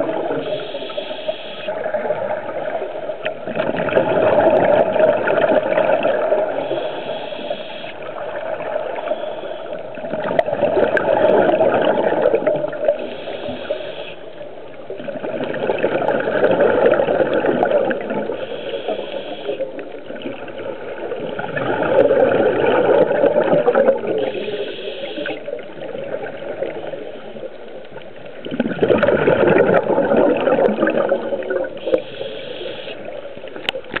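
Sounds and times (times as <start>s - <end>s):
regulator bubbles underwater: 0.0s - 34.0s
regulator hiss: 0.4s - 1.8s, 6.6s - 8.1s, 13.0s - 14.3s, 18.4s - 19.8s, 24.2s - 25.5s, 31.8s - 33.2s.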